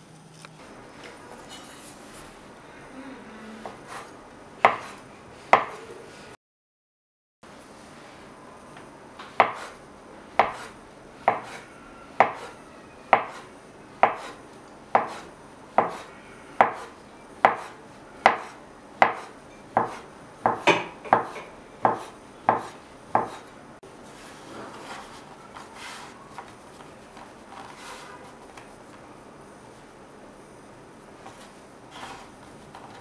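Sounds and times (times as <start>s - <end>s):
knife chopping on wooden board: 3.7s - 5.8s, 9.4s - 9.8s, 10.4s - 10.7s, 11.3s - 11.6s, 12.2s - 23.5s.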